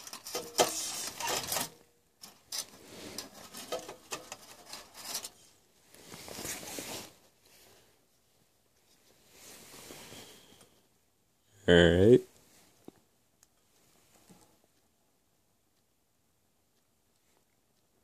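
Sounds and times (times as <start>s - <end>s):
rustling and crinkling foil: 0.0s - 7.4s.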